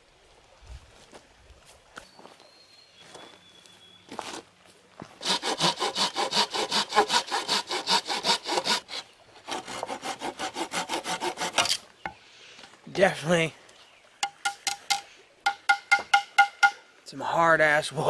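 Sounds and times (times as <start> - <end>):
hand saw cutting branch: 5.2 - 11.9.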